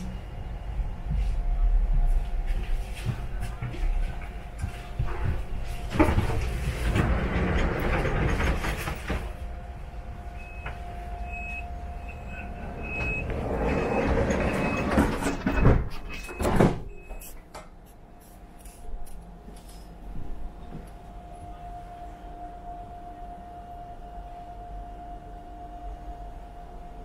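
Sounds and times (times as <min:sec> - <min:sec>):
steady hum: 0:00.0 - 0:15.6, 0:17.0 - 0:27.0
electric train running: 0:06.1 - 0:15.6.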